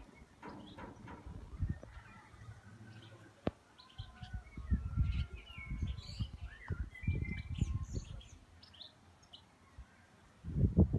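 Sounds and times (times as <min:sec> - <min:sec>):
small birds chirping: 0:00.0 - 0:10.3
low rumbling on microphone: 0:10.4 - 0:10.9.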